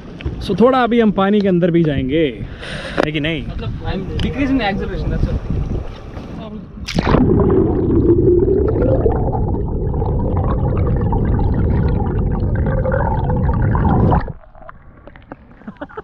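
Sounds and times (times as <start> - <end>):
muffled underwater rumble: 5.4 - 15.7.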